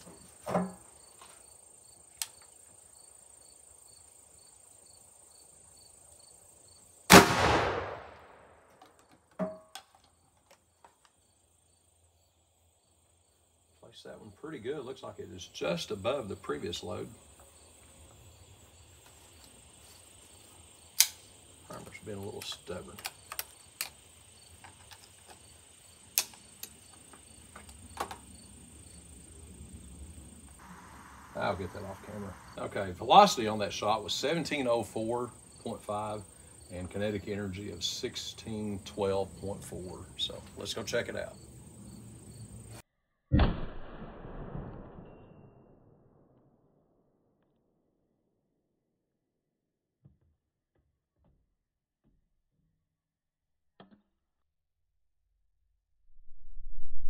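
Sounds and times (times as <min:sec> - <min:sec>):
crickets chirping: 0:00.0 - 0:07.2, 0:07.9 - 0:42.8
rifle shot with ringing tail: 0:07.1 - 0:08.7, 0:43.3 - 0:46.4
rifle action clicks: 0:21.0 - 0:21.2
sharp metallic clicks: 0:21.0 - 0:24.0, 0:26.1 - 0:26.8.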